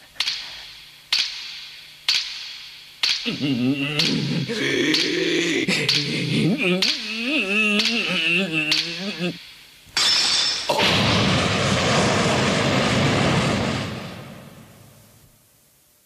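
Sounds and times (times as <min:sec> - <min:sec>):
wobbling voice-like hum: 0:03.2 - 0:09.4
sharp percussive hits: 0:10.0 - 0:13.3.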